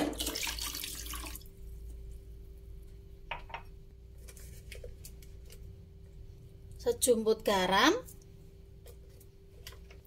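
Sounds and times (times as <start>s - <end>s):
water pouring into saucepan: 0.0s - 1.5s.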